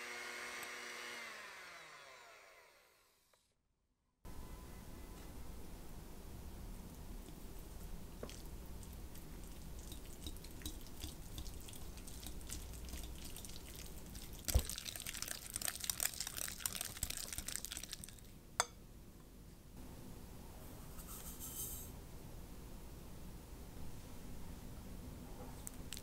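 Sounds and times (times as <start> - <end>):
whisk in cream cheese: 8.3 - 18.2
whisk clicking against glass: 9.8 - 13.2.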